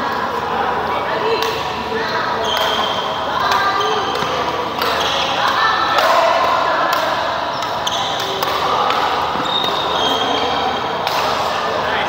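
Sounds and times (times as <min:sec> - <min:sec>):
echoing voices in background: 0:00.0 - 0:12.0
badminton racket hitting shuttlecock: 0:02.5 - 0:09.8.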